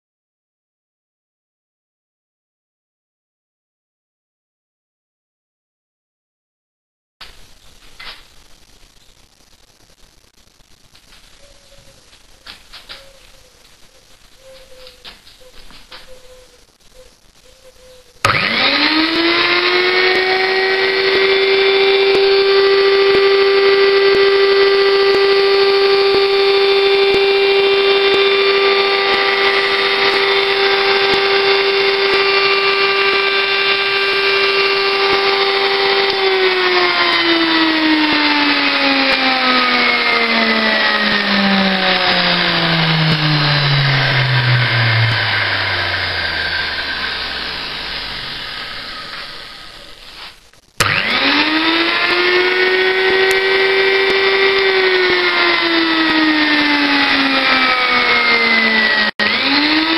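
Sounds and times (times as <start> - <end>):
electric angle grinder whining: 18.2 - 50.2, 50.8 - 59.9.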